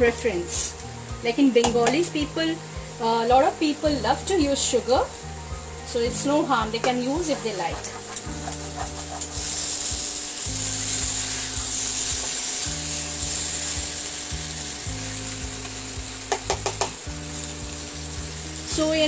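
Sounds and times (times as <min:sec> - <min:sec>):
food sizzling in a pan: 0:00.0 - 0:19.0
soft background music: 0:00.0 - 0:19.0
spatula tapping a pan: 0:16.2 - 0:17.0.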